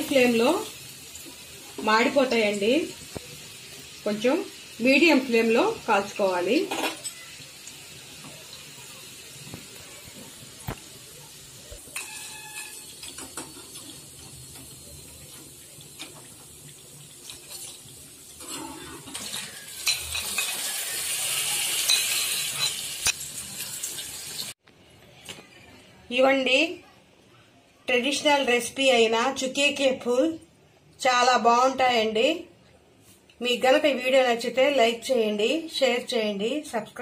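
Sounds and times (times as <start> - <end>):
oil sizzling while deep-frying: 0.0 - 24.6
spoon clinking and scraping pan: 11.9 - 13.9, 18.4 - 20.8, 21.7 - 23.2.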